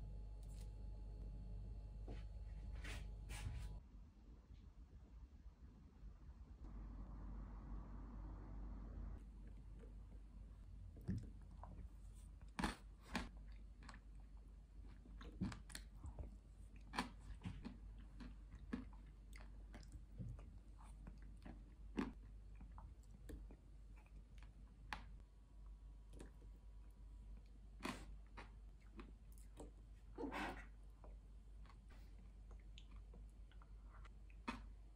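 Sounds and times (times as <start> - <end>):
chewing crunchy food: 10.8 - 25.2, 27.2 - 34.9.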